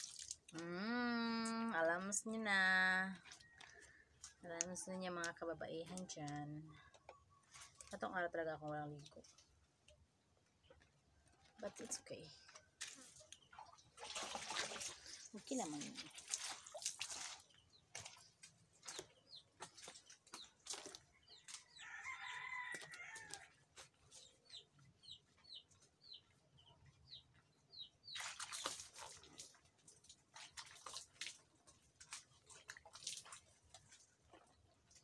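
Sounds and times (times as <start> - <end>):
water splashing from dipper: 0.0 - 0.6, 12.8 - 21.0, 28.1 - 34.0
small birds chirping: 14.8 - 31.2.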